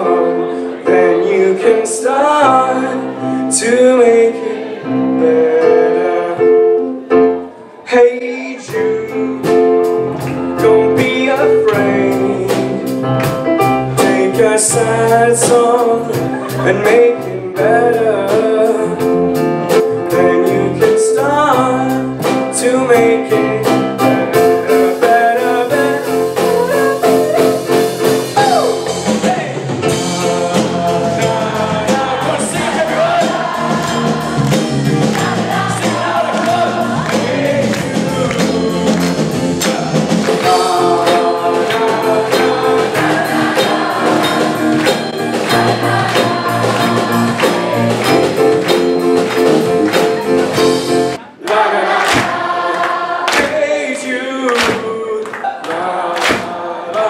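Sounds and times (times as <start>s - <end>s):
crowd singing chorus: 0.0s - 6.8s, 29.5s - 57.0s
live rock band: 8.6s - 51.3s.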